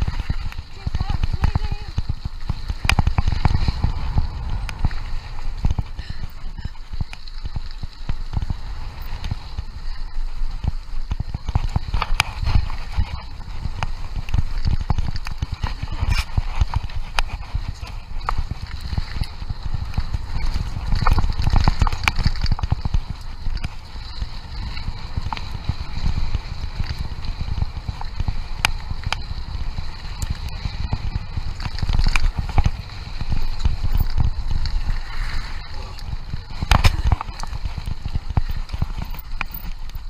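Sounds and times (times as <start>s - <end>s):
bike clicks and rattles: 0.0s - 40.0s
wind buffeting microphone: 0.0s - 40.0s
tyres hissing on gravel: 3.0s - 11.5s, 32.8s - 39.6s.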